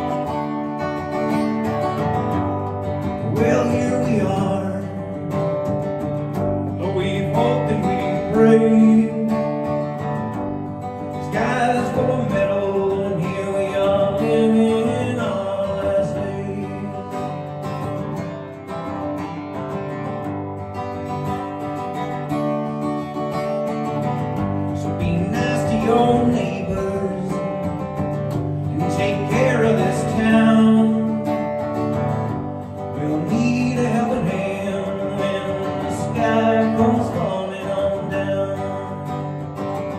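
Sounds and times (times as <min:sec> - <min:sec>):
amplified acoustic guitar strumming: 0:00.0 - 0:39.9
man singing: 0:03.0 - 0:10.3, 0:11.0 - 0:17.7, 0:24.7 - 0:32.0, 0:32.6 - 0:39.9.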